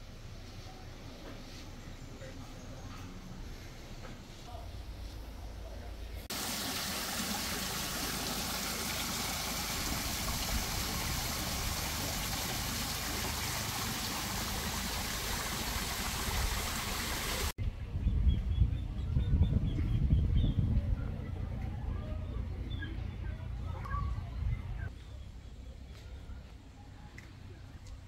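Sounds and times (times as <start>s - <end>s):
waterfall trickling into pond: 6.3s - 17.6s.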